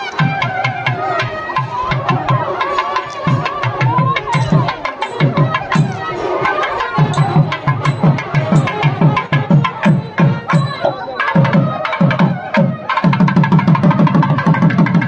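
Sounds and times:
music with fast drumbeat: 0.0 - 15.0.

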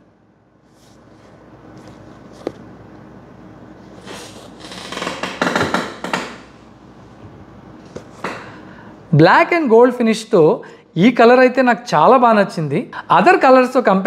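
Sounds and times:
shoes rustling and scraping: 0.8 - 2.8.

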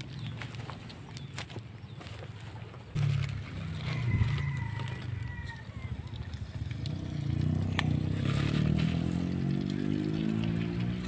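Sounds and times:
motor engine running: 3.0 - 11.0.

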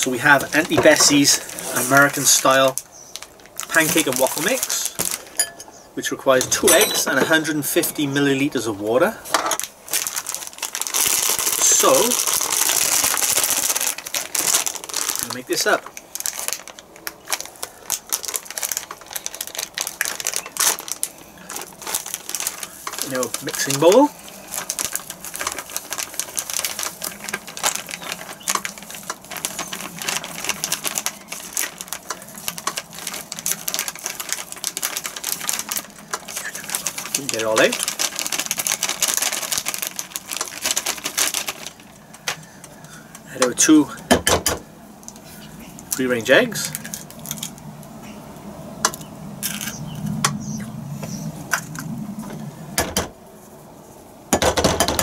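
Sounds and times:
packet crinkling: 0.0 - 5.4, 9.6 - 43.9, 45.0 - 48.0, 48.8 - 50.6.

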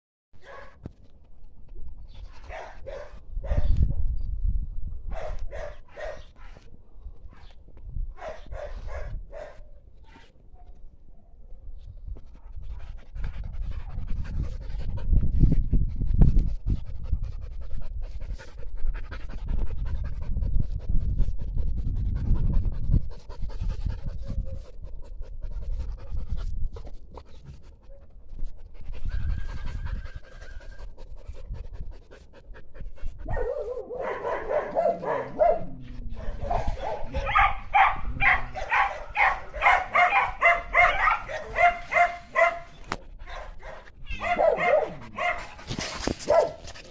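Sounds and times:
dog panting with whines: 12.2 - 33.5, 40.2 - 46.9
dog whining: 44.0 - 45.6.

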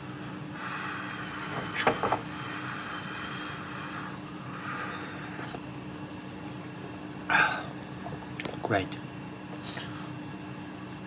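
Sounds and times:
steady low hum: 0.0 - 11.0
breathy exhale: 0.5 - 5.6.

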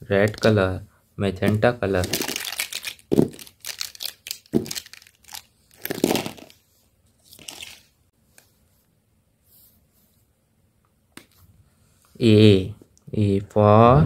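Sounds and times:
plastic pens clattering: 2.0 - 6.6
soft rustle: 6.6 - 10.4.

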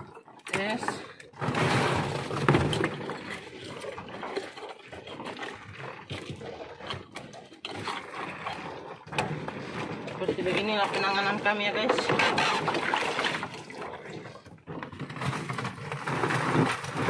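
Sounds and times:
ice scooped and packed: 14.8 - 17.0.

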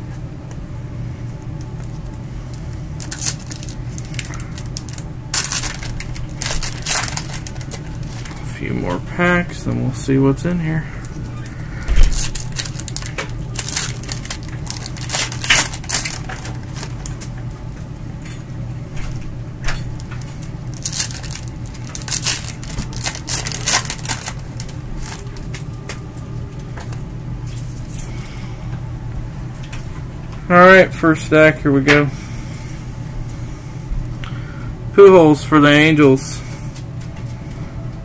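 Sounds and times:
steady low hum: 0.0 - 38.0
foil wrappers crinkling and tearing: 1.8 - 9.4, 10.7 - 17.3, 19.9 - 26.0.

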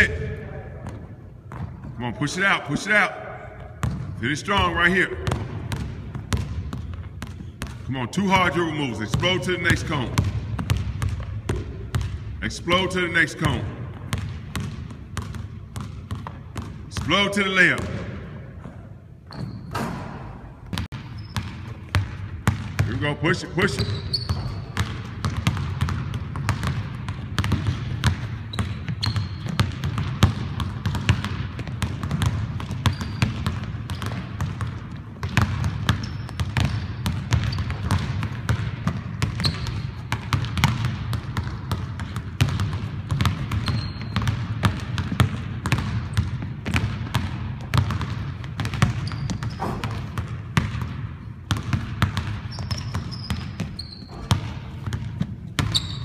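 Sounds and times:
basketballs bouncing on hardwood: 0.0 - 2.2, 3.4 - 56.0
sneaker squeaks: 18.6 - 22.2, 23.5 - 26.6, 27.4 - 29.9, 32.1 - 38.1, 39.2 - 40.7, 43.1 - 44.6, 48.6 - 50.4, 52.0 - 56.0.

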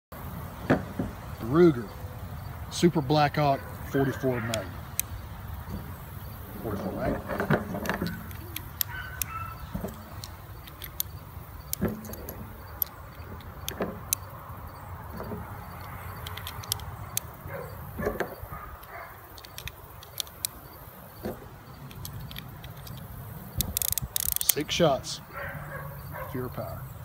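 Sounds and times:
revolver loading metallic clicks: 6.6 - 14.4, 15.2 - 20.8, 21.8 - 25.0.

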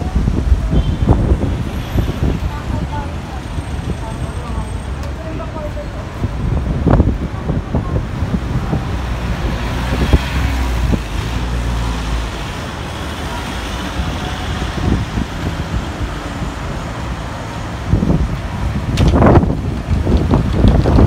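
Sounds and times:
cars driving past: 8.2 - 21.0.

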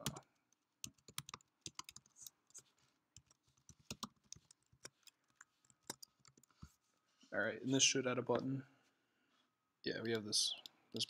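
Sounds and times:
computer keyboard typing: 0.0 - 2.6, 3.2 - 6.6.

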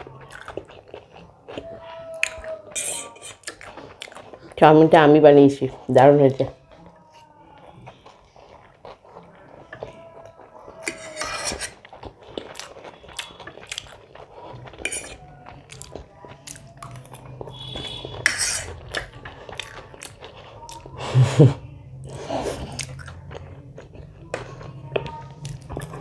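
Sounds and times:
cutlery clinking on a plate: 10.8 - 11.8.

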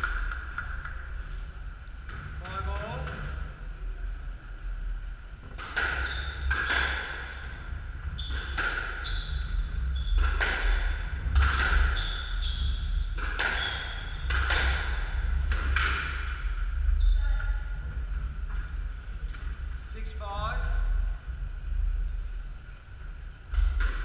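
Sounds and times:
steady low hum: 0.0 - 24.0
squash ball hits: 10.0 - 12.0, 13.1 - 16.3.

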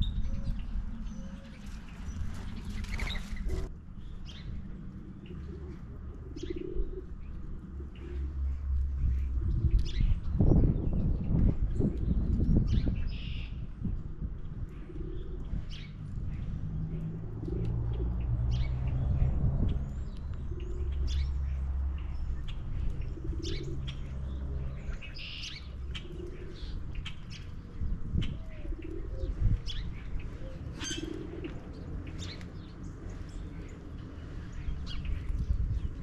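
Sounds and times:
steady low rumble: 0.0 - 36.0
dove cooing: 5.0 - 8.5, 14.7 - 15.9, 20.4 - 35.0
birds chirping: 14.5 - 36.0.

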